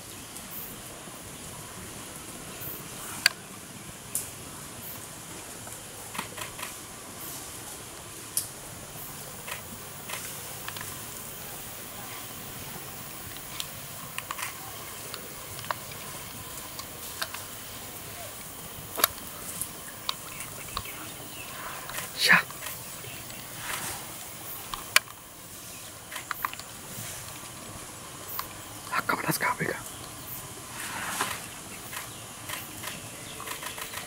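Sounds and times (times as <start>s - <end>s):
steady outdoor hiss: 0.0s - 34.0s
sharp clicks and snaps: 6.1s - 6.8s, 13.3s - 17.6s, 18.9s - 20.9s, 24.6s - 25.2s, 26.1s - 27.5s, 28.3s - 29.1s, 31.2s - 34.0s.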